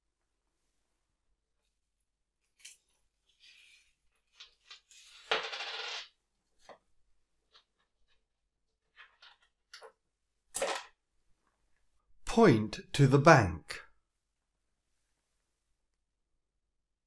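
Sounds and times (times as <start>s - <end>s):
coins clattering on table: 4.4s - 6.2s, 10.5s - 11.0s.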